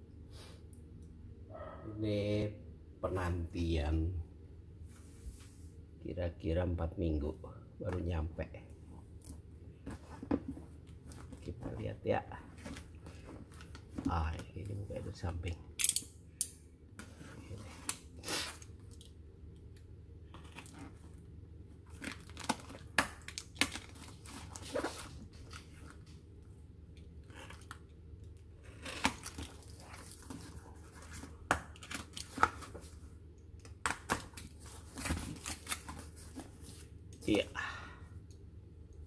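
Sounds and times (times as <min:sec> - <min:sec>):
tape tearing: 0:21.9 - 0:26.0, 0:28.6 - 0:32.8, 0:33.8 - 0:36.8.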